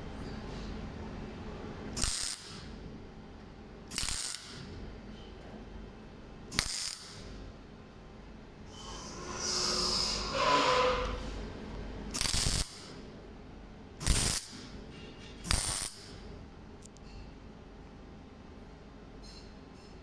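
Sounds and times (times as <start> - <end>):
welding arc bursts: 2.0 - 2.7, 3.9 - 4.7, 6.5 - 7.3, 12.1 - 13.0, 14.0 - 14.7, 15.5 - 16.2.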